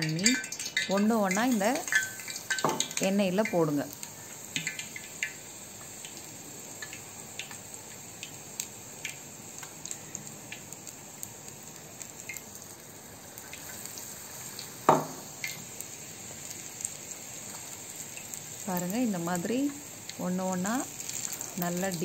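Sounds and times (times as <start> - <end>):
oil sizzling with crackles: 0.0 - 22.0.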